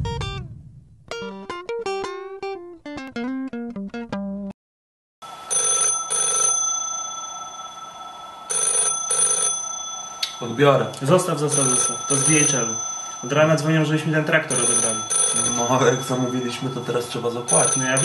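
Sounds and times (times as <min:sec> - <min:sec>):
plucked guitar melody: 0:00.0 - 0:04.5
telephone bell ringing: 0:05.3 - 0:18.0.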